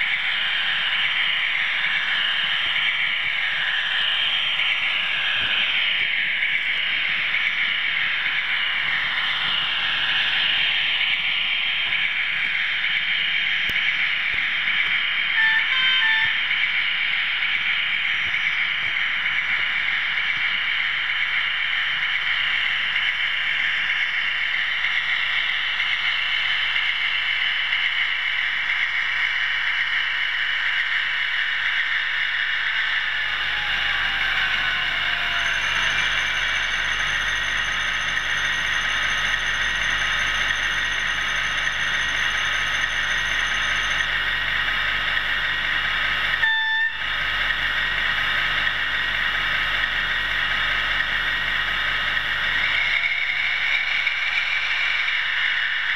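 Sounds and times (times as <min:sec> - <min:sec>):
model trains whirring: 0:00.0 - 0:55.9
short tone: 0:15.4 - 0:16.4, 0:33.7 - 0:44.2, 0:46.4 - 0:47.1.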